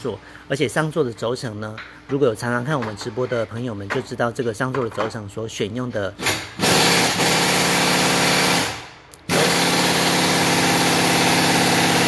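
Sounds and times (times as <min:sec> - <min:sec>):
motor-driven tool running: 0:06.2 - 0:12.0.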